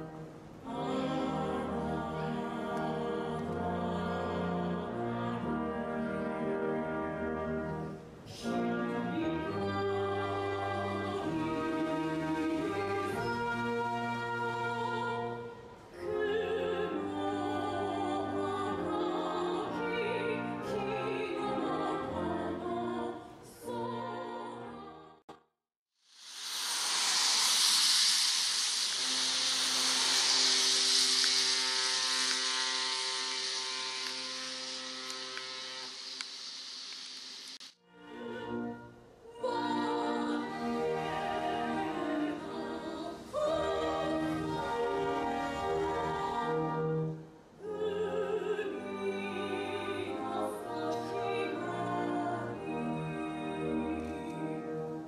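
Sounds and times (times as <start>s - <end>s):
operatic singing: 0.0s - 7.2s, 8.4s - 25.2s, 37.9s - 55.0s
orchestral music: 0.0s - 23.8s, 26.7s - 36.2s, 37.8s - 55.0s
outdoor hiss: 26.0s - 37.8s.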